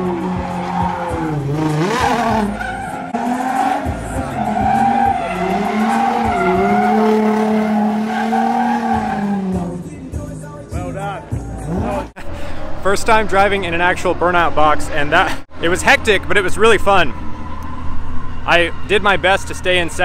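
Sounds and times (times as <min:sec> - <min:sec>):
car engine revving: 0:00.0 - 0:10.0
tyres skidding and squealing: 0:00.0 - 0:10.0.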